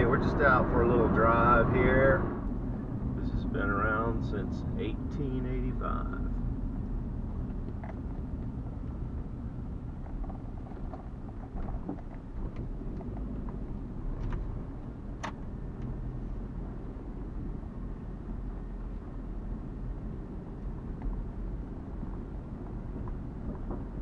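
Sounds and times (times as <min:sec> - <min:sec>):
engine and road rumble: 0:00.0 - 0:24.0
clicks and knocks on wooden planks: 0:10.0 - 0:13.6, 0:22.1 - 0:24.0.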